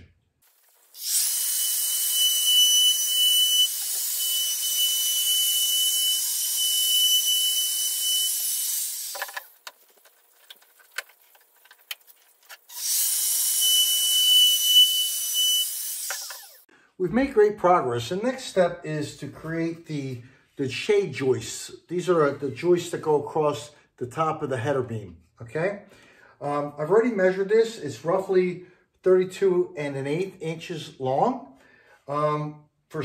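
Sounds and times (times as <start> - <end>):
router cutting wood: 1.0 - 9.5, 12.7 - 16.7.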